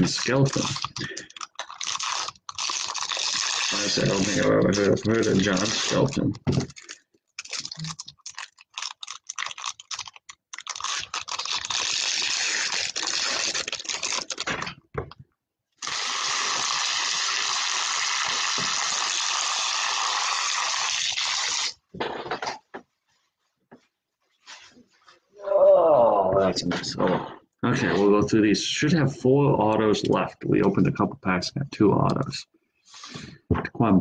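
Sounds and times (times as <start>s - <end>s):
foil wrappers crinkling and tearing: 0.0s - 14.8s, 15.8s - 21.8s.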